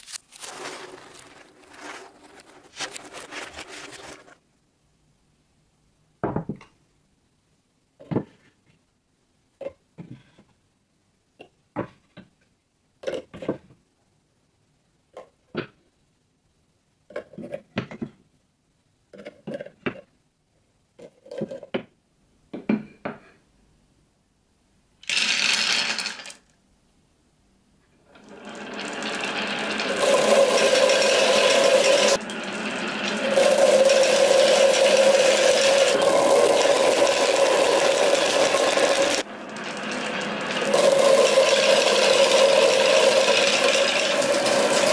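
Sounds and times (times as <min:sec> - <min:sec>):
marbles rolling through tubes: 0:25.0 - 0:26.5, 0:28.2 - 0:44.9.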